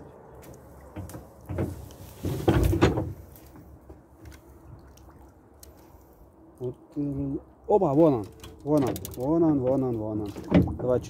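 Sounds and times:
boat knocking: 0:00.8 - 0:04.0, 0:08.8 - 0:11.0
boat creaking: 0:00.8 - 0:04.4, 0:07.2 - 0:11.0
knock and scrape: 0:01.0 - 0:03.2.

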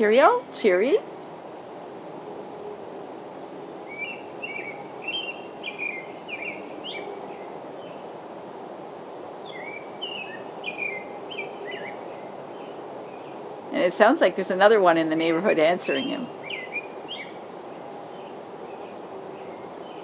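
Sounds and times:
low background noise: 0:00.0 - 0:20.0
robin singing: 0:03.8 - 0:08.1, 0:09.4 - 0:20.0.

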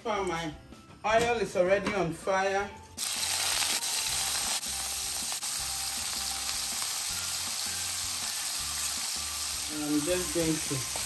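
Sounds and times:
food sizzling in hot oil: 0:03.0 - 0:11.0.

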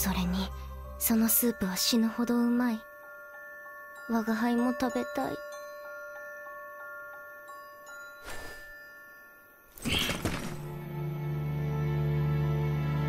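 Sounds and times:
glockenspiel-like notes: 0:00.0 - 0:11.2
low sustained chord: 0:10.8 - 0:13.0.

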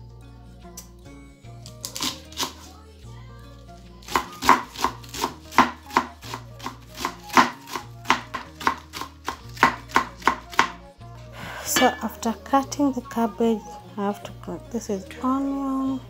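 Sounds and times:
knife chopping on wooden board: 0:04.1 - 0:10.8.

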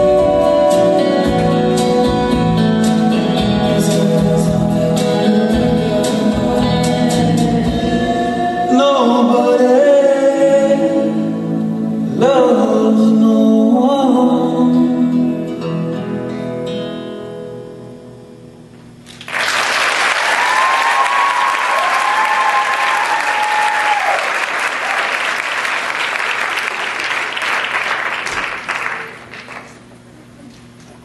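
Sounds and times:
audience applause: 0:19.1 - 0:29.8
crowd cheering: 0:19.3 - 0:29.6.

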